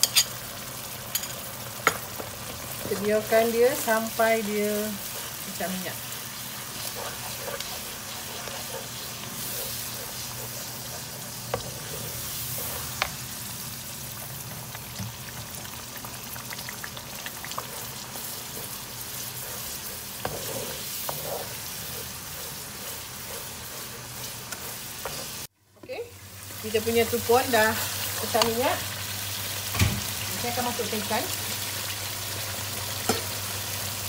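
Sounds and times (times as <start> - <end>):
paste sizzling in hot oil: 0.0 - 25.5
wooden spatula stirring: 2.2 - 13.3, 14.2 - 25.5.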